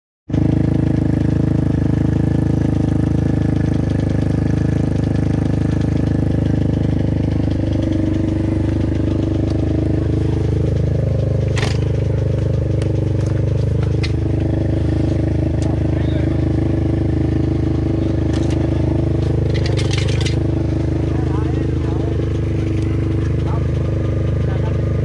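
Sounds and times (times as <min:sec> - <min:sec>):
small engine idling: 0:00.3 - 0:25.0.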